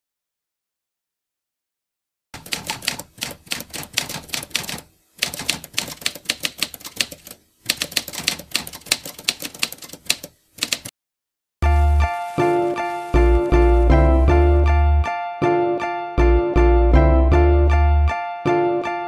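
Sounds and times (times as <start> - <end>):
rapid keyboard key clacks: 2.4 - 10.9.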